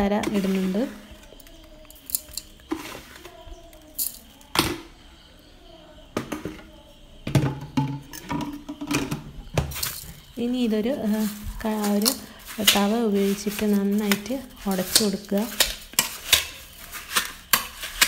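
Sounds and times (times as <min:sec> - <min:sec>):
faint voices: 0:00.0 - 0:15.9
utensils knocking on metal pot: 0:07.2 - 0:18.0.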